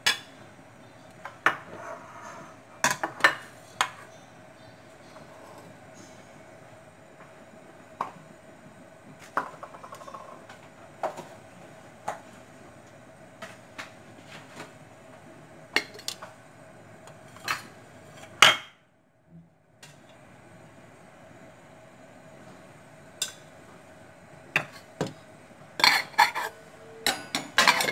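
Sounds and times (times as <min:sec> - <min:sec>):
steady hum: 0:00.0 - 0:27.9
crockery and kitchenware clinking: 0:25.8 - 0:27.9.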